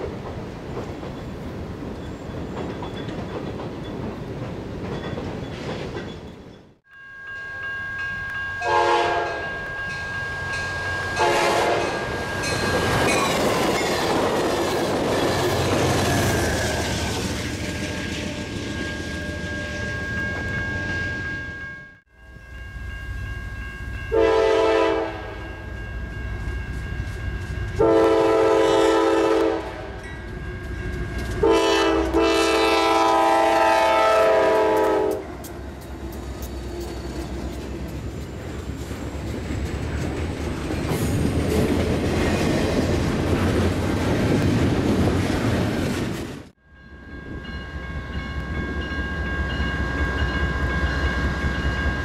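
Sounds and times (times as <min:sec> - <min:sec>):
container train rumbling and clacking: 0:00.0 - 0:06.8, 0:09.2 - 0:21.5, 0:25.6 - 0:46.6
diesel locomotives rumbling: 0:07.4 - 0:52.0
locomotive air horn blasts: 0:08.6 - 0:09.5, 0:11.1 - 0:12.3, 0:24.1 - 0:25.5, 0:27.8 - 0:30.0, 0:31.4 - 0:35.4.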